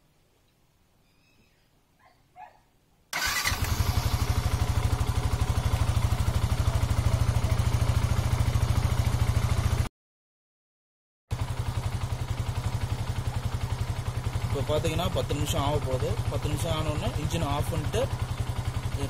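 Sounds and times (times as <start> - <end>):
motorcycle engine idling: 3.2 - 9.9, 11.3 - 19.0.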